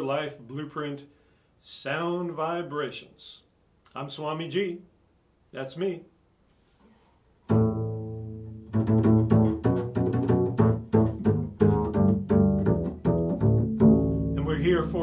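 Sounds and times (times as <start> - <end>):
double bass plucked: 7.5 - 15.0.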